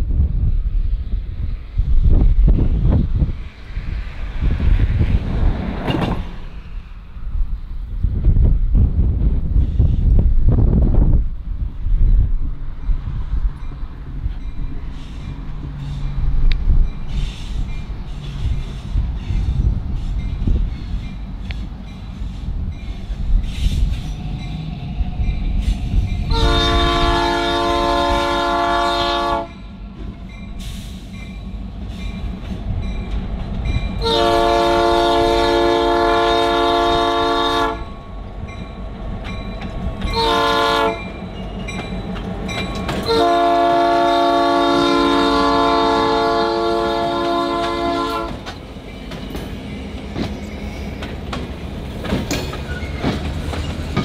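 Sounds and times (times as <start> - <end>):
diesel engine rumble: 0.3 - 54.0
freight cars rolling: 2.4 - 7.7, 12.3 - 54.0
locomotive horn blasts: 26.3 - 29.6, 34.0 - 38.0, 40.1 - 41.2, 42.9 - 48.5.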